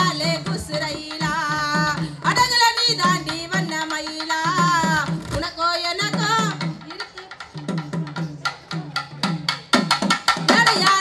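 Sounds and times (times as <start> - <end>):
woman singing folk song: 0.0 - 6.6
quick steady drum beat: 0.0 - 11.0.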